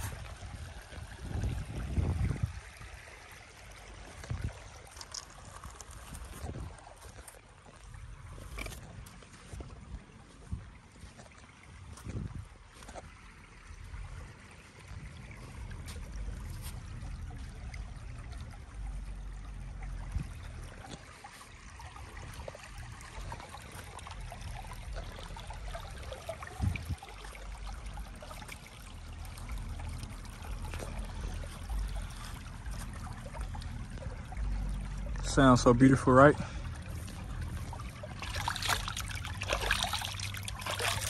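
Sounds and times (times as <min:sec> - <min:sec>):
stream trickling over pebbles: 0:00.0 - 0:41.0
footsteps on wet gravel: 0:04.1 - 0:13.2, 0:14.6 - 0:17.6, 0:29.4 - 0:41.0
low rumble: 0:29.0 - 0:35.8.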